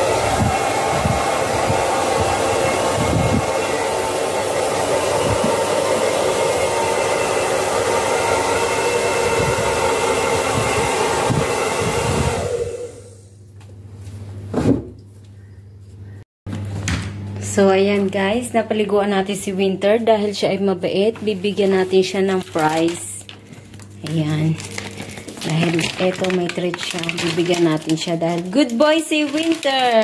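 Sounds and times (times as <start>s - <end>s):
hair dryer blowing: 0.0s - 13.4s, 24.0s - 28.1s.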